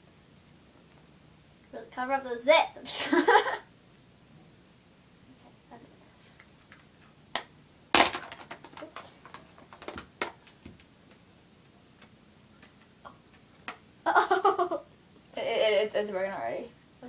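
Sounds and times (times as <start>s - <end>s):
plastic cases clicking and clattering: 8.0s - 10.5s.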